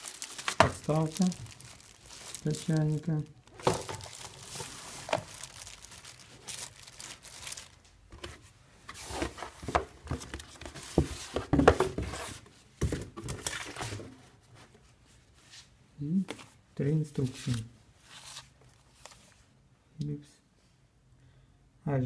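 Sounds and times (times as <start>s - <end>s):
paper leaflets rustling: 0.0s - 8.0s
plastic bags crinkling: 0.0s - 8.0s.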